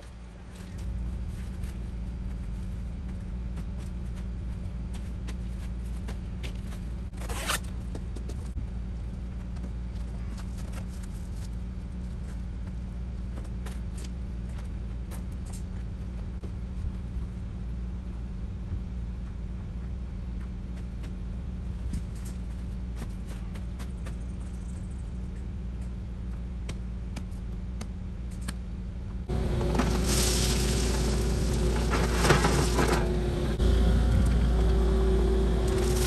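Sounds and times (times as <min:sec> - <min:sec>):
excavator engine running: 0:29.2 - 0:36.0
scraping and clinking of digging: 0:29.5 - 0:33.3.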